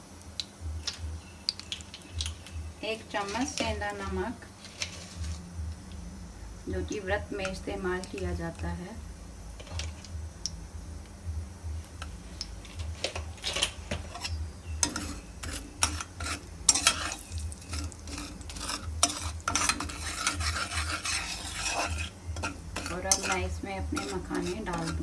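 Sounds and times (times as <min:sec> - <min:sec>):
light sizzle: 0:00.0 - 0:25.0
metal spatula scraping a pan: 0:03.1 - 0:05.4, 0:12.8 - 0:25.0.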